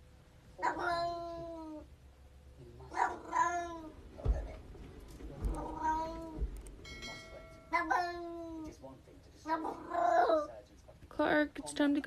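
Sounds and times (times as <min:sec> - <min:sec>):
cat meowing: 0:00.6 - 0:01.8, 0:02.9 - 0:04.0, 0:05.5 - 0:06.4, 0:07.7 - 0:08.7.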